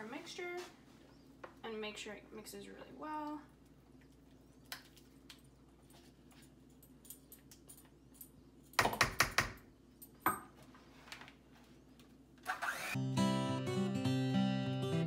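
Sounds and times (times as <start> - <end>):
strummed acoustic guitar music: 13.0 - 15.0.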